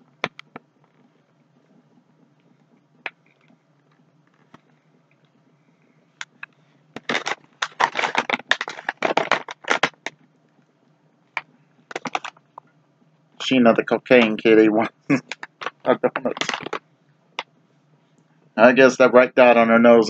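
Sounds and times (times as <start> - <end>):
plastic bag crinkling: 6.2 - 10.1, 11.9 - 12.6, 14.1 - 16.8.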